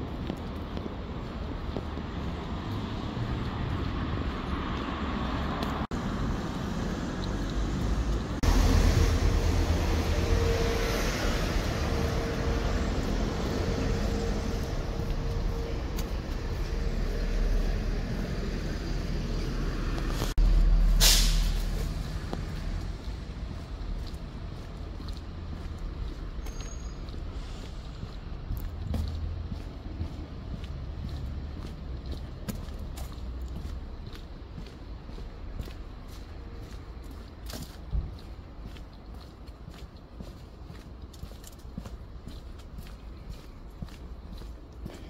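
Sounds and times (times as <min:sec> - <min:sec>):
vehicles passing: 0:00.0 - 0:45.0
short hiss: 0:21.0 - 0:21.7.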